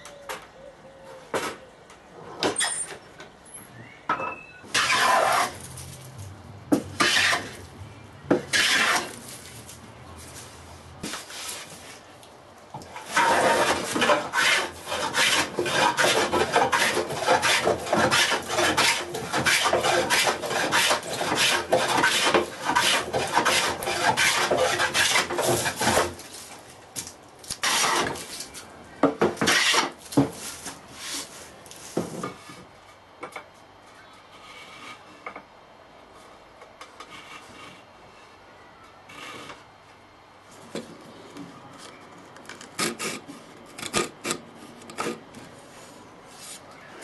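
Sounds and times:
hand plane shaving wood: 4.7s - 5.6s, 7.0s - 7.6s, 8.5s - 9.3s, 13.0s - 26.3s, 27.6s - 28.2s, 29.4s - 30.0s.

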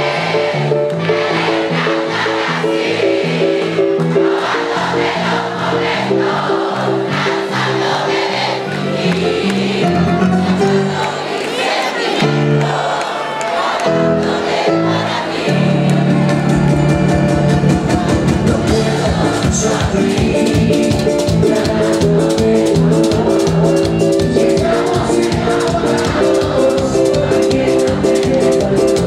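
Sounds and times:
live band playing latin dance music: 16.1s - 29.0s.

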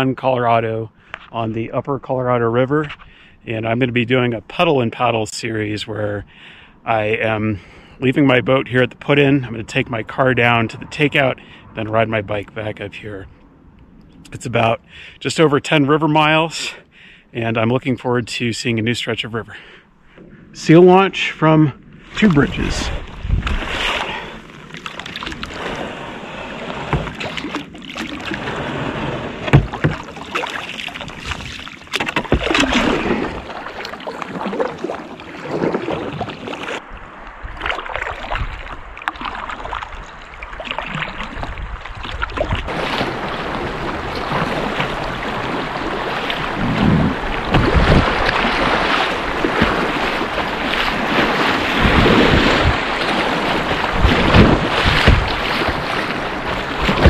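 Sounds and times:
waves breaking over bow: 20.1s - 57.0s
water splashing against kayak: 21.9s - 57.0s
paddle strokes: 22.0s - 57.0s
rush of choppy current: 22.1s - 57.0s.

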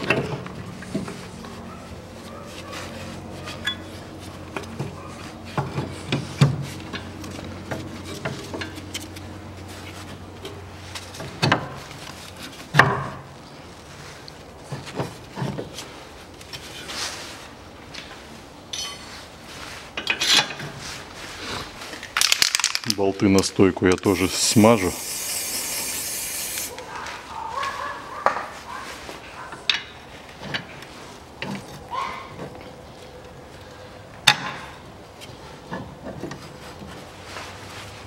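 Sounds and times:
metal clinks and knocks: 18.7s - 19.2s.

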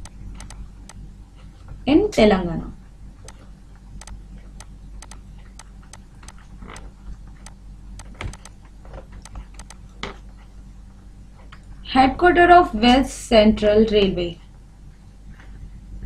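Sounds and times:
low electrical hum: 0.0s - 16.0s
stylus tapping on tablet: 4.0s - 5.2s, 8.0s - 8.6s, 9.2s - 9.8s.

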